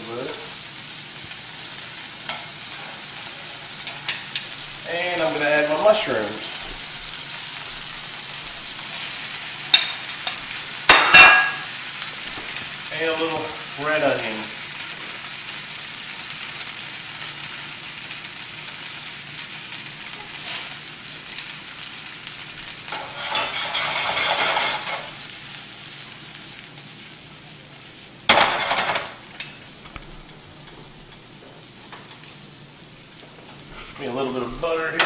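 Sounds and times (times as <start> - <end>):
mushrooms and onion sizzling in a pan: 0.0 - 35.0
pan being stirred: 2.1 - 15.2, 22.5 - 25.3.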